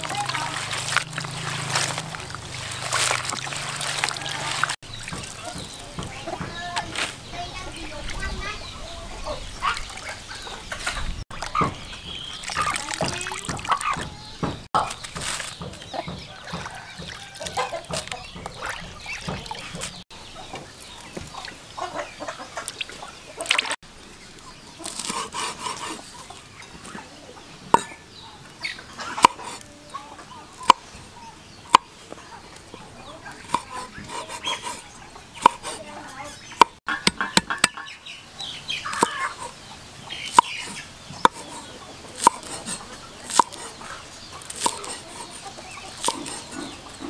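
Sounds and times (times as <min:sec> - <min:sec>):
rustling in plastic basin: 0:00.0 - 0:05.6, 0:14.9 - 0:15.6
chickens clucking: 0:00.0 - 0:23.8, 0:24.4 - 0:47.0
cleaver chopping on wooden board: 0:29.2 - 0:29.6, 0:33.5 - 0:34.4, 0:35.4 - 0:35.8, 0:36.6 - 0:37.8, 0:40.3 - 0:40.5, 0:41.2 - 0:43.6, 0:44.4 - 0:45.3, 0:46.0 - 0:46.4.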